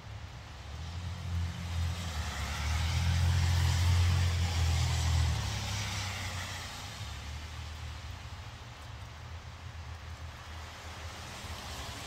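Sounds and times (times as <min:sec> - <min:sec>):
car driving past: 0:00.8 - 0:07.2.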